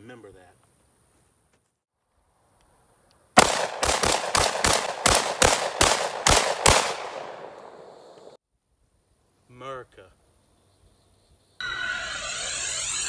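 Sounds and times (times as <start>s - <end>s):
gunshot echo: 3.4s - 8.4s
rifle shots: 3.4s - 8.4s.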